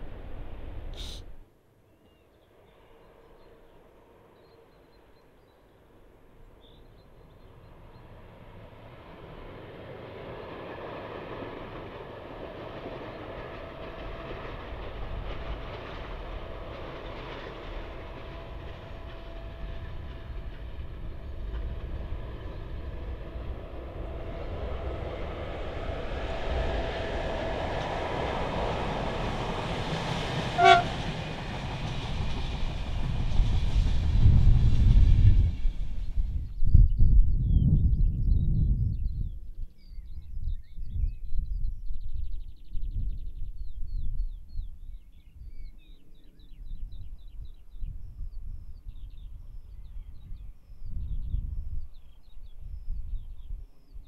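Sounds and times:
electric train rumble and hum: 0:00.0 - 0:01.5, 0:02.1 - 0:54.0
short train horn toot: 0:30.5 - 0:31.1.

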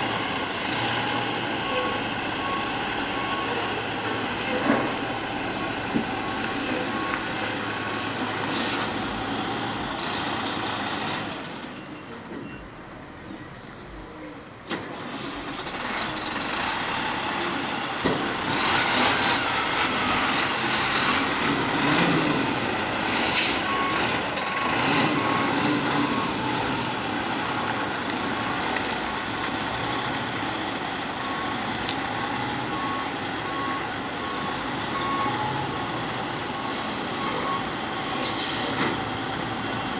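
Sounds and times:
reversing alarm beeping: 0:01.6 - 0:03.8, 0:18.6 - 0:26.8, 0:31.1 - 0:35.8, 0:36.5 - 0:38.6
diesel truck engine running: 0:14.9 - 0:39.9.

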